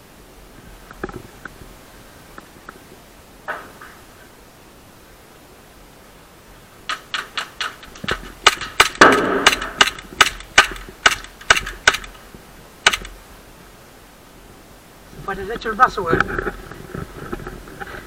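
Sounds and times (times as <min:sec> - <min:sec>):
bb gun shots: 0:06.9 - 0:12.2, 0:12.8 - 0:13.2.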